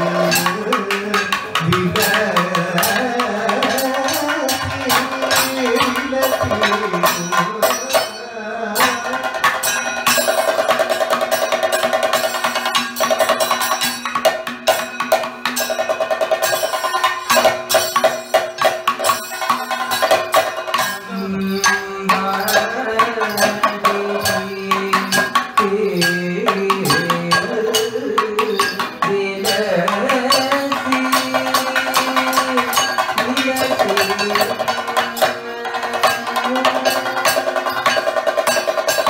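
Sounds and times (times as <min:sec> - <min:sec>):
fast dense drumming: 0:00.0 - 0:08.2, 0:08.8 - 0:39.0
vocalists singing: 0:00.0 - 0:09.8, 0:20.8 - 0:37.9.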